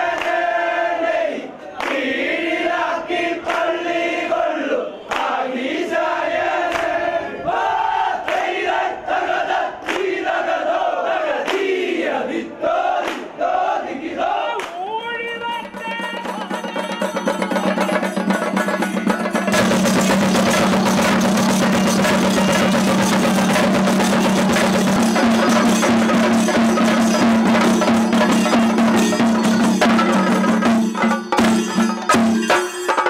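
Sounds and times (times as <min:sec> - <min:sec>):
drums beaten rapidly with sticks: 0:15.0 - 0:33.0.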